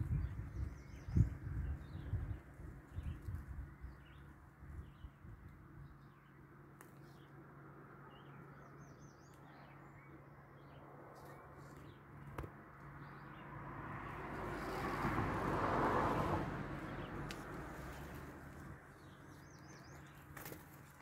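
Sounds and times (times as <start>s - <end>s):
low outdoor hum: 0.0s - 15.9s.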